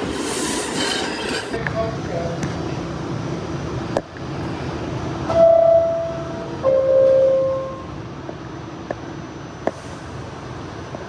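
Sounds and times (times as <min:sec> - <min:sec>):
train hum: 0:00.0 - 0:11.0
two-tone door chime: 0:05.3 - 0:07.9.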